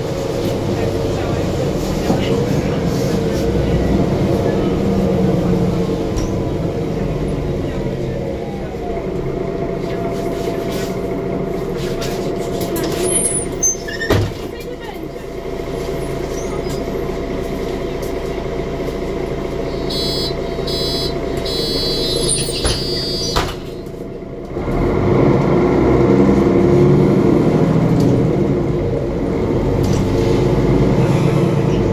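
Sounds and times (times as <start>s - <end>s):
bus diesel engine: 0.0s - 31.9s
bus doors shutting with knocks: 12.0s - 14.9s, 21.2s - 24.0s
electronic door-warning beeps: 19.9s - 23.4s.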